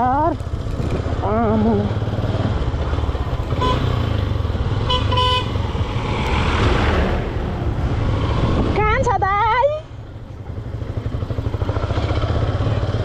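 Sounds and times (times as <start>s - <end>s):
motorcycle engine running: 0.0s - 13.0s
road and traffic noise: 0.0s - 13.0s
motorcycle horn toots: 3.5s - 4.2s, 4.8s - 5.6s.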